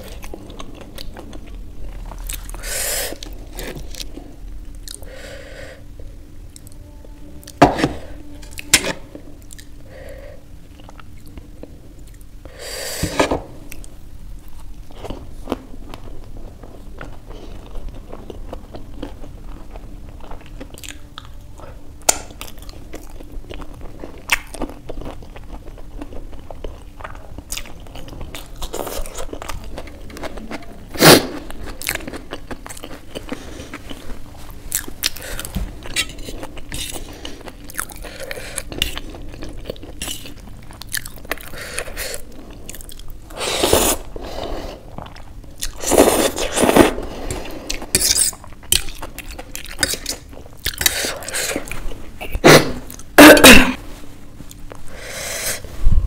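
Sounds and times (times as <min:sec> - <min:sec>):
chewing noodles: 0:22.1 - 0:53.1.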